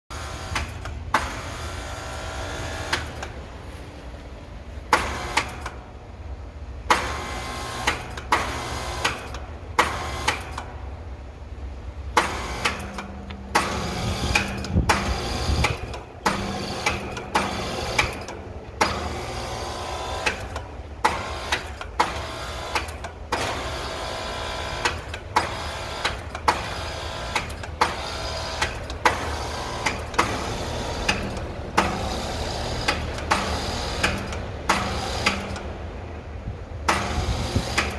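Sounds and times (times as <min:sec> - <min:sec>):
air conditioner unit humming: 0:00.1 - 0:37.9
loud sharp clicks: 0:00.5 - 0:01.4, 0:02.9 - 0:03.4, 0:04.9 - 0:05.8, 0:06.9 - 0:10.7, 0:12.1 - 0:19.2, 0:20.2 - 0:23.6, 0:24.8 - 0:32.2, 0:32.8 - 0:35.7, 0:36.8 - 0:37.9.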